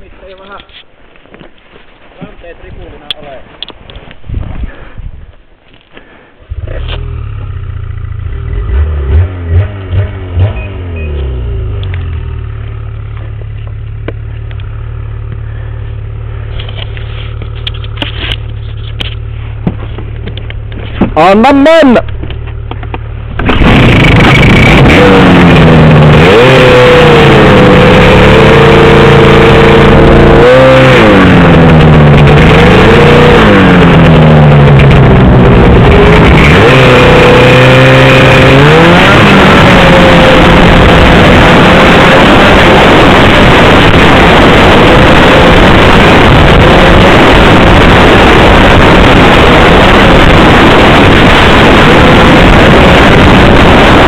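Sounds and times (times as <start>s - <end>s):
dense rushing noise: 6.2s - 54.0s
snowmobile engine revving: 8.2s - 12.8s, 23.4s - 54.0s.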